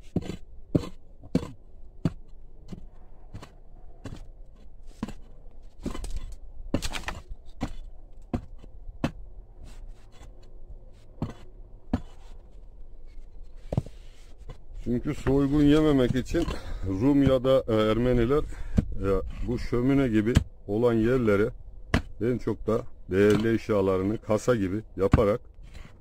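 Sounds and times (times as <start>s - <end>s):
digging tool striking stone: 0.0s - 4.3s, 4.9s - 9.3s, 11.2s - 12.2s, 21.9s - 22.3s, 23.2s - 23.7s, 25.0s - 25.4s.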